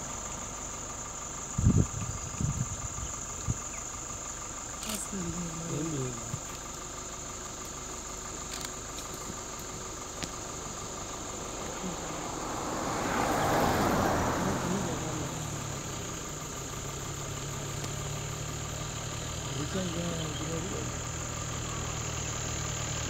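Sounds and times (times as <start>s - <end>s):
vehicle engine idling: 0.0s - 23.0s
vehicle passing: 10.7s - 22.3s.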